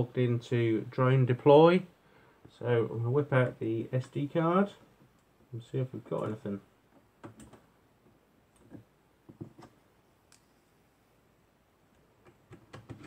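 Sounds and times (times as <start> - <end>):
faint clicks and light taps: 4.8 - 10.6.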